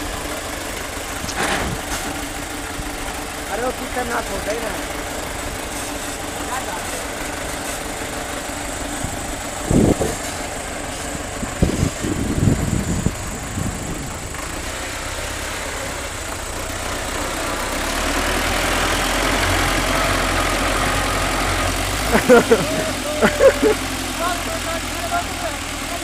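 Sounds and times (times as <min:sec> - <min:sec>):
diesel tractor engines under load: 0:00.0 - 0:26.0.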